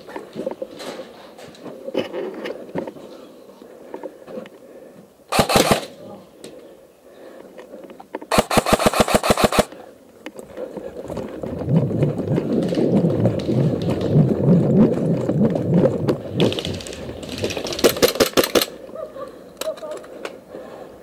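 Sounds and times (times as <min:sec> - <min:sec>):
airsoft rifle rapid shots: 0:05.3 - 0:05.9, 0:08.3 - 0:09.7, 0:17.8 - 0:18.8
footsteps on forest ground: 0:10.3 - 0:18.2
gear rattle: 0:10.9 - 0:18.7.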